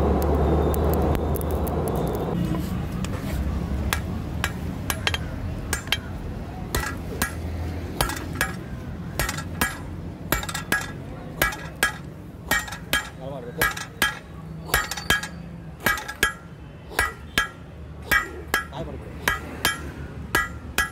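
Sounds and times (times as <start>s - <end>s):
hammer striking metal on anvil: 3.9s - 6.1s, 6.7s - 20.9s.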